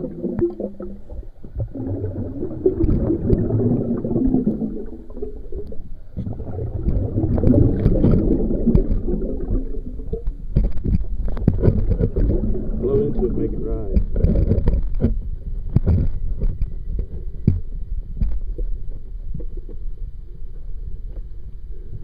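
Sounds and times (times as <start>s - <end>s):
river water gurgling and sloshing: 0.0s - 15.2s.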